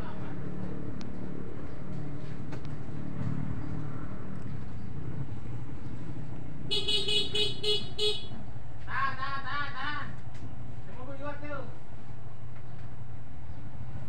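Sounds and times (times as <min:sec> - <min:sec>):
vehicle horn tooting: 0:06.7 - 0:08.4.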